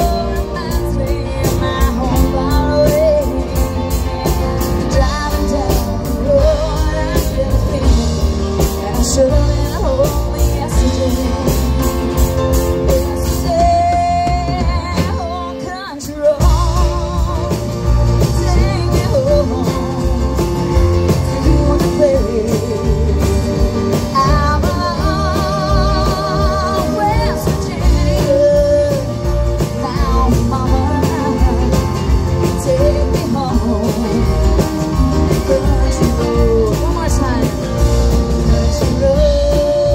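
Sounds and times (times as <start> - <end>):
country band playing: 0.0 - 39.9
lead vocal singing: 0.0 - 39.9.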